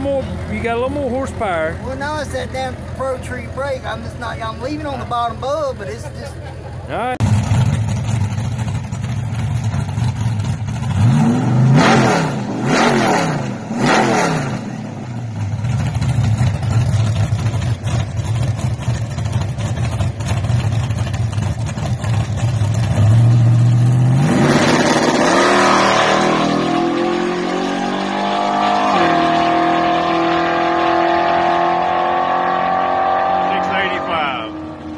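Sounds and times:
truck engine revving and accelerating: 9.6 - 34.9.

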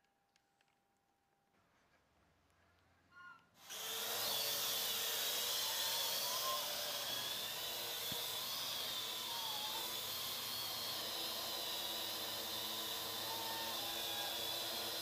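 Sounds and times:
drone propellers whirring: 3.7 - 15.0.

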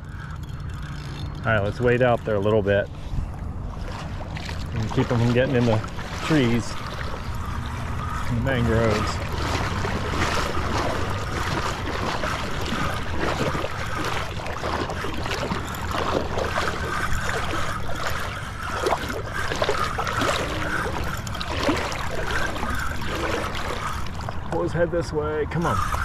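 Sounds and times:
water lapping against boat hull: 0.0 - 26.0
wind buffeting microphone: 0.0 - 26.0
fishing tackle clicks and knocks: 0.1 - 2.5.

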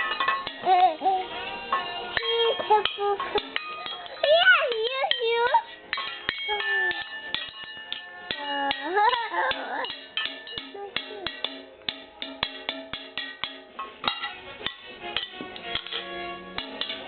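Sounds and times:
child beating metal pots: 0.0 - 17.0
child's voice: 2.2 - 3.4, 4.2 - 5.8, 6.5 - 7.0, 8.4 - 10.0, 10.7 - 11.4.

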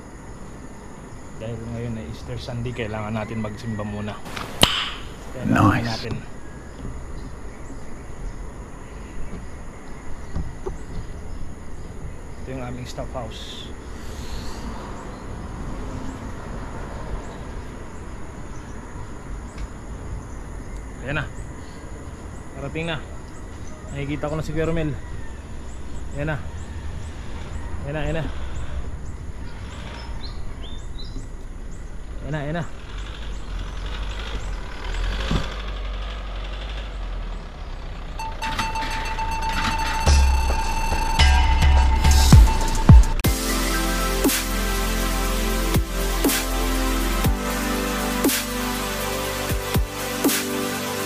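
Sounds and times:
car engine rumble: 4.2 - 14.0, 25.4 - 43.5
electronic music with bass beat: 38.2 - 51.0.

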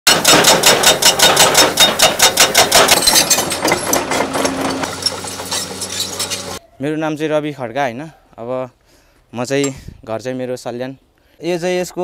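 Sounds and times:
hydraulic breaker hammering rock: 0.1 - 6.6.

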